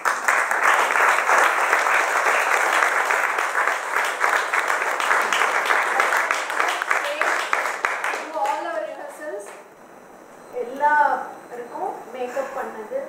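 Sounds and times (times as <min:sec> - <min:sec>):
audience applause: 0:00.0 - 0:08.9.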